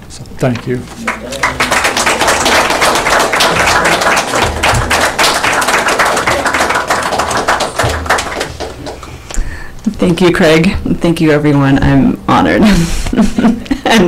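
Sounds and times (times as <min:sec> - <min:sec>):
congregation applauding: 0:00.9 - 0:09.3.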